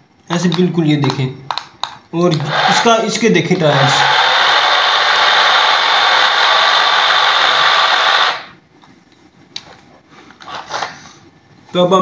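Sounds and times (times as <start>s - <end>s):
toy car motors whirring and grinding: 3.8s - 8.5s.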